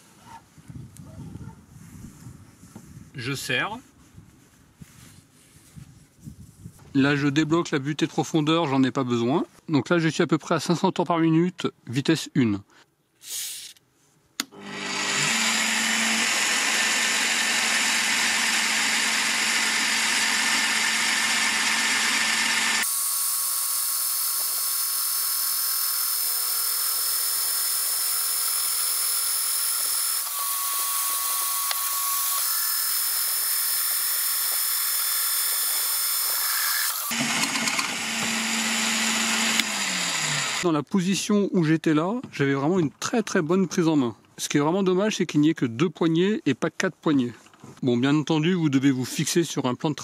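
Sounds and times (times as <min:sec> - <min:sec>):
drill press drilling into steel: 0:14.4 - 0:40.6.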